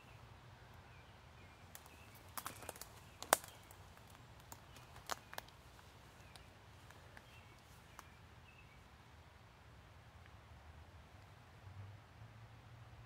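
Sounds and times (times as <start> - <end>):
footsteps snapping twigs and leaves: 1.7 - 8.1.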